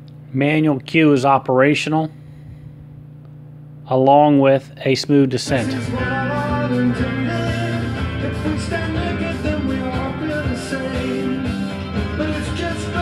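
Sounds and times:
song playing from vinyl record: 5.5 - 13.0.

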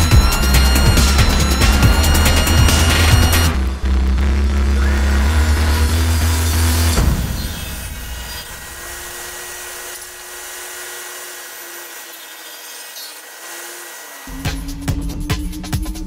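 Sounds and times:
table saw ripping wood: 4.6 - 14.4.

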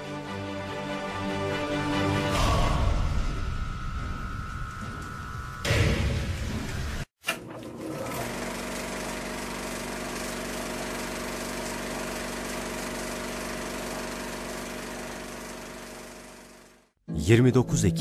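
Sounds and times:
machine drone with fast rattling: 8.2 - 17.0.

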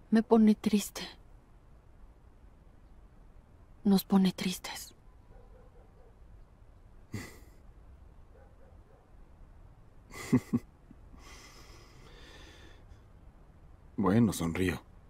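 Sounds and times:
person chuckling: 7.1 - 7.6, 10.1 - 11.6
soft breaths: 11.1 - 13.2.

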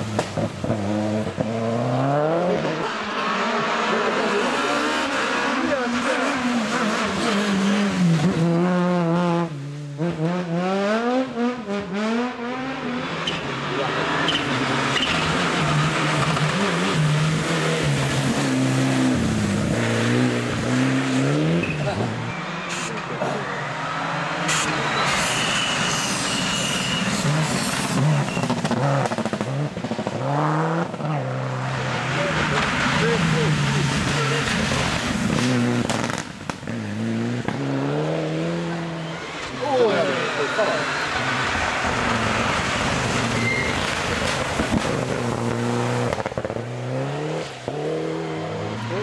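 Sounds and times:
rally car engine revving: 0.0 - 49.0
tyre hiss on wet road: 24.5 - 28.0.

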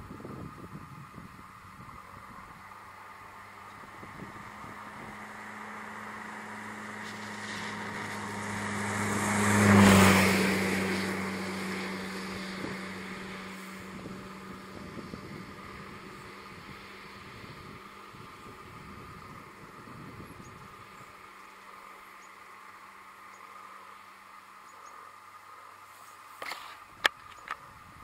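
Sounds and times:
vehicle passing by: 1.8 - 24.1.

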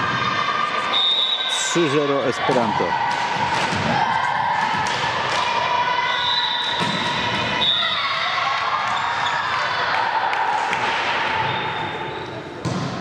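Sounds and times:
young voices cheering and shouting: 7.5 - 10.7
volleyball knocks echoing: 12.6 - 13.0.

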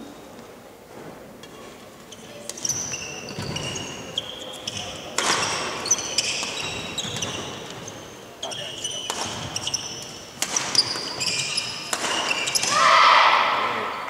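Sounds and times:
shoes squeaking on wooden floor: 2.0 - 12.8
rackets hitting shuttlecock: 4.6 - 7.9, 8.9 - 12.8.

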